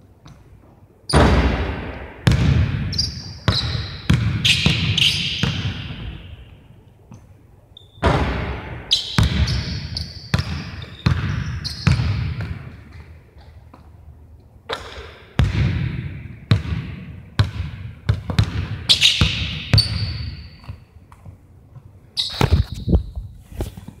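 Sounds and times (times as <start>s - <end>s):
basketball bouncing on gym floor: 1.1s - 7.2s, 8.0s - 13.8s, 14.7s - 22.8s
shoe squeaks: 2.9s - 6.1s, 7.7s - 8.0s, 8.9s - 12.2s, 18.9s - 20.9s, 22.2s - 24.0s.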